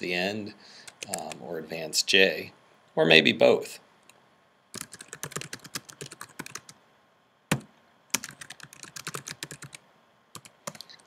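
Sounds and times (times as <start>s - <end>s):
typing on computer keyboard: 0.9s - 1.4s, 4.7s - 6.8s, 7.5s - 9.8s, 10.4s - 11.0s.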